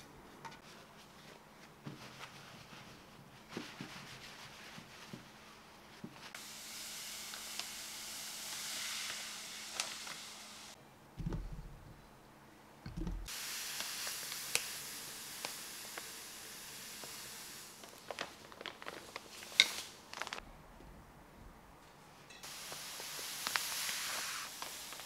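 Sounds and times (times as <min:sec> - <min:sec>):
soft thuds: 0:11.2 - 0:12.0.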